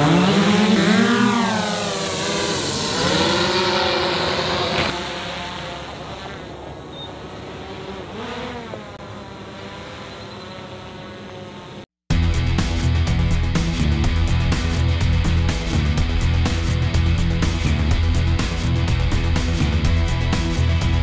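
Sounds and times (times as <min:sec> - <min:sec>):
drone propellers buzzing: 0:00.0 - 0:21.0
music: 0:12.1 - 0:21.0.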